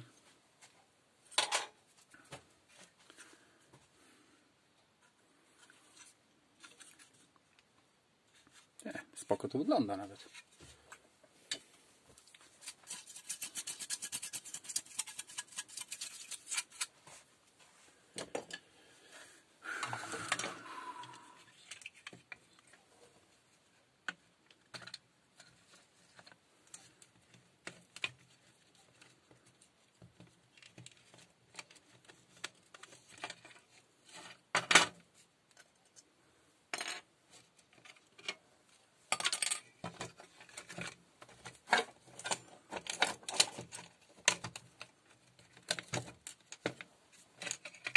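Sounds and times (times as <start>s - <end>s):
plastic parts clicking and rattling: 1.3s - 2.9s, 12.2s - 17.0s, 21.5s - 22.8s, 24.0s - 36.0s, 36.8s - 38.4s, 39.1s - 47.9s.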